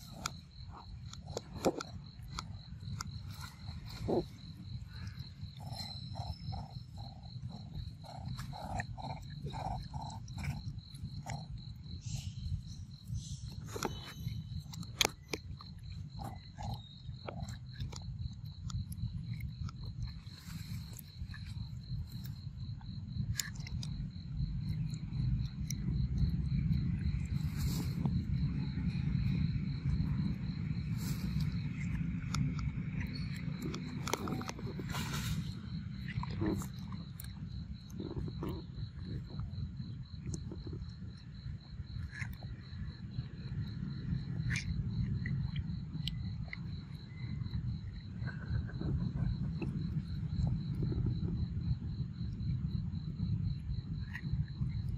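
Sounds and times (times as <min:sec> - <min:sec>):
monkey biting and chewing: 0:00.0 - 0:22.4, 0:29.3 - 0:39.4.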